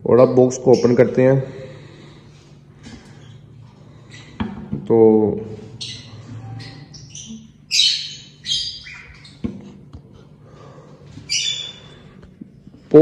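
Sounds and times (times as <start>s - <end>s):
lovebirds squawking: 0.2s - 2.0s, 5.7s - 9.5s, 11.2s - 12.1s.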